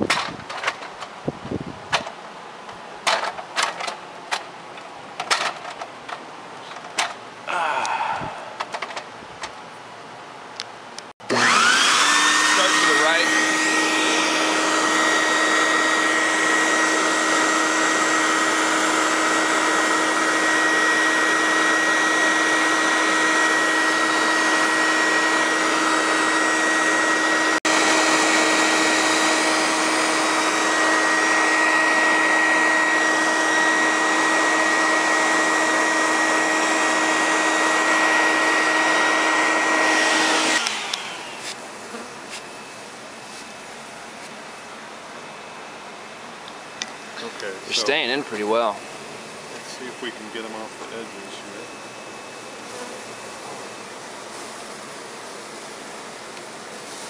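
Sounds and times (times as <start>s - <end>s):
vacuum motor humming and whining: 11.2s - 44.7s, 46.8s - 57.0s.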